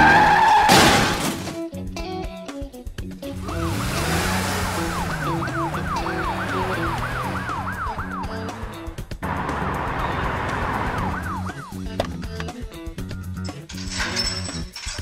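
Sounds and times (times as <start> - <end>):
background music: 0.0 - 15.0
ambulance siren yelp: 3.3 - 8.8, 10.7 - 11.9.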